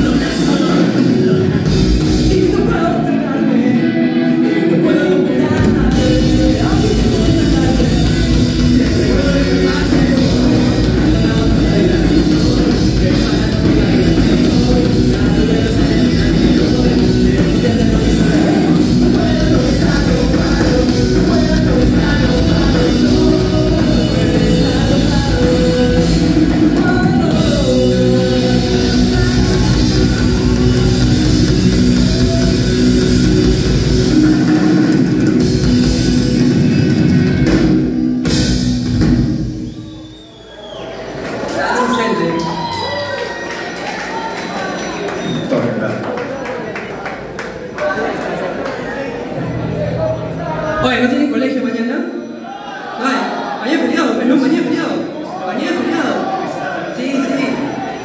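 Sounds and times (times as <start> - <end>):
drum kit: 0.0 - 3.1, 4.8 - 40.5
person singing: 0.0 - 35.8
electric guitars: 0.0 - 39.9.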